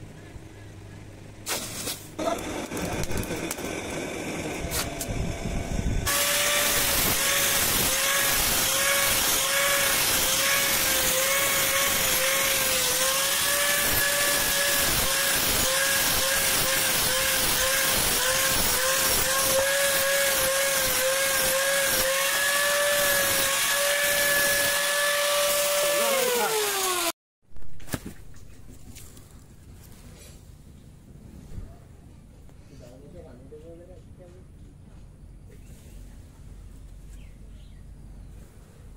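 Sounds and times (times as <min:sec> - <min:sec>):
grinder disc spinning down: 0:02.2 - 0:27.1
angle grinder grinding steel: 0:02.2 - 0:27.2.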